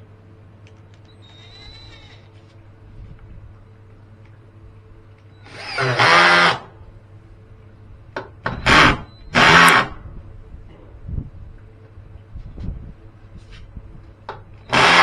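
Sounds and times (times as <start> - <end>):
power drill whining: 5.4 - 6.7, 8.6 - 10.0, 14.6 - 15.0.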